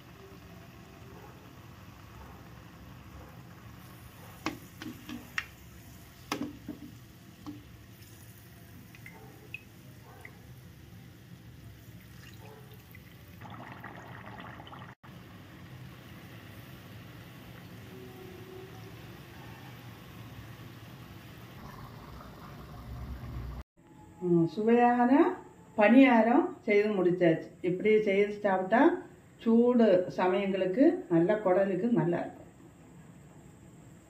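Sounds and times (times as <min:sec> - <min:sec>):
oil sizzling in a pan: 0:00.0 - 0:23.6.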